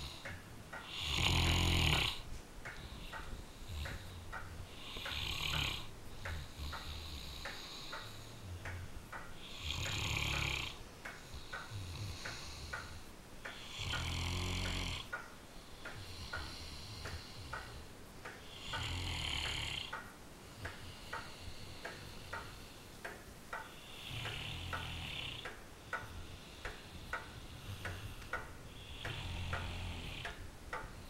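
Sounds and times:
dog snoring: 0.8s - 8.6s, 9.4s - 15.1s, 18.5s - 19.9s, 23.8s - 25.4s, 26.2s - 30.4s.

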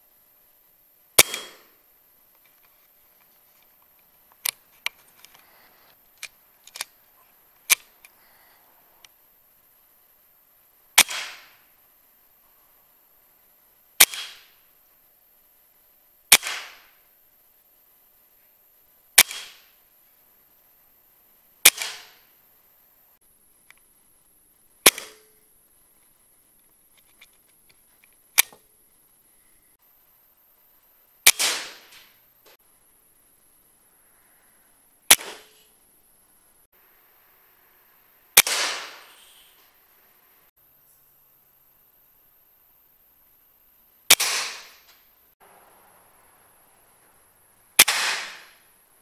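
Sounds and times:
air rifle shot: 1.2s - 1.8s, 11.0s - 11.6s, 14.0s - 14.5s, 16.3s - 17.0s, 19.2s - 19.7s, 21.6s - 22.2s, 24.8s - 25.3s, 31.3s - 32.2s, 35.1s - 35.6s, 38.4s - 39.6s, 44.1s - 44.9s, 47.8s - 48.6s.

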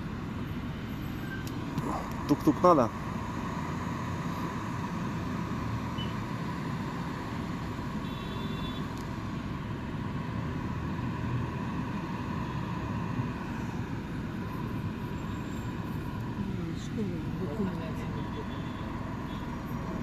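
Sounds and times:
bus engine and road rumble: 0.0s - 20.0s.

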